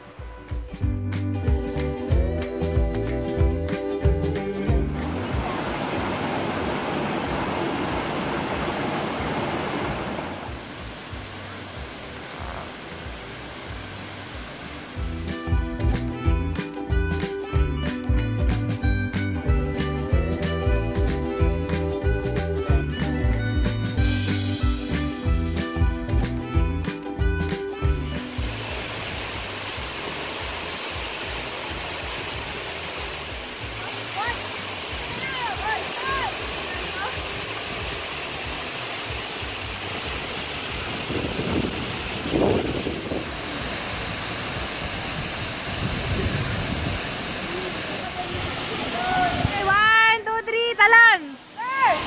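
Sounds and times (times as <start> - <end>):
background music: 0.0 - 6.4, 10.5 - 43.1
water rushing over rocks: 1.4 - 19.2, 27.8 - 50.3, 50.9 - 52.0.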